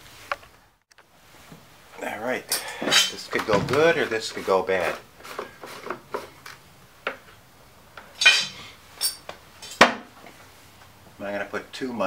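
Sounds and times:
scraping rasp: 2.9s - 6.4s.

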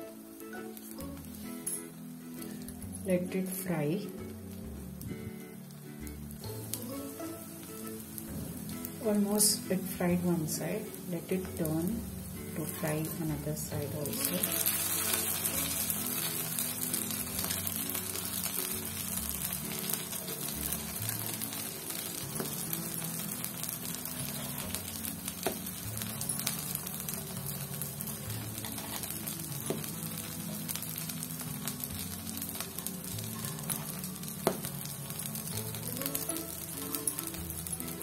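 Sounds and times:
batter sizzling in oil: 0.0s - 38.0s
soft background music: 0.0s - 38.0s.

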